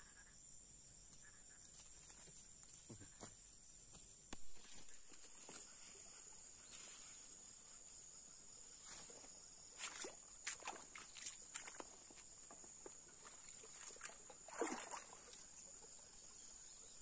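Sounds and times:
insect chorus: 0.0s - 17.0s
footsteps on mud: 9.8s - 14.8s.

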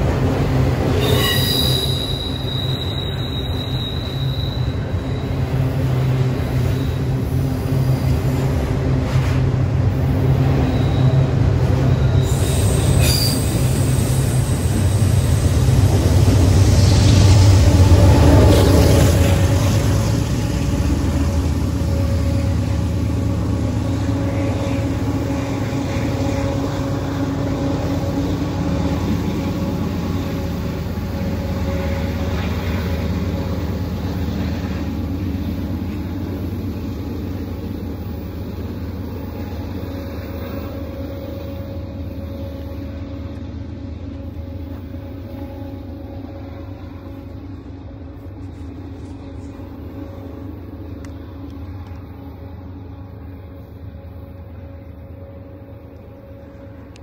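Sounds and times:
diesel locomotive engine drone: 0.0s - 57.0s.

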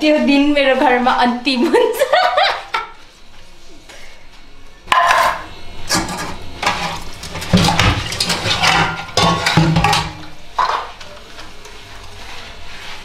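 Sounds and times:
dishes clattering in steel sink: 4.9s - 11.0s.

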